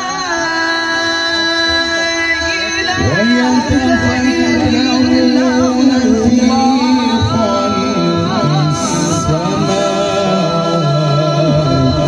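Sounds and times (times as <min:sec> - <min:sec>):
man reciting melodically: 0:00.0 - 0:12.0.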